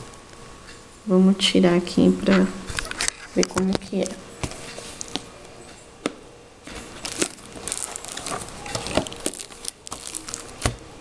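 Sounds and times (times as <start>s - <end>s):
plastic cases rustling and scraping: 2.8s - 5.3s, 6.6s - 10.9s.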